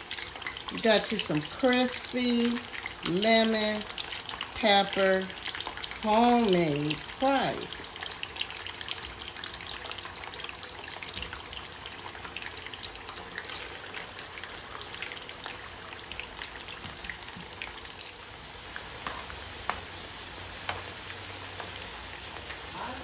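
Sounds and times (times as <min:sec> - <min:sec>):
potatoes deep-frying in oil: 0:00.0 - 0:23.0
metal tongs clicking on pan: 0:19.0 - 0:19.9, 0:20.6 - 0:20.9.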